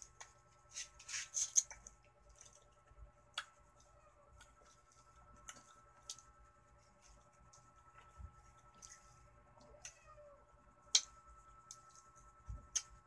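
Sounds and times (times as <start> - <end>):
faint steady hum: 0.0 - 13.0
wet chewing: 1.2 - 6.4.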